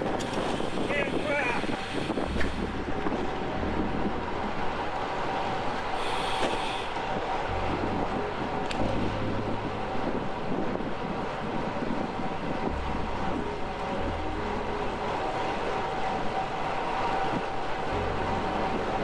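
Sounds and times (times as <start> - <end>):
wind on microphone: 0.0 - 19.0
short hiss: 6.0 - 6.9.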